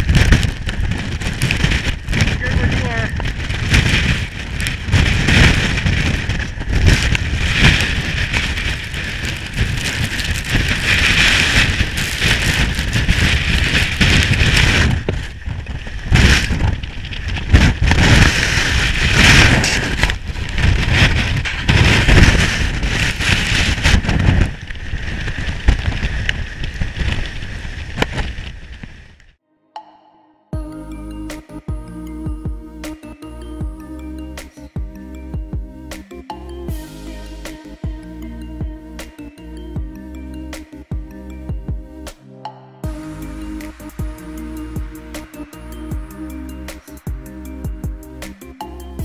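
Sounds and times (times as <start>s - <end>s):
hiss of wind-driven snow: 0.0s - 29.1s
wind buffeting microphone: 0.0s - 29.4s.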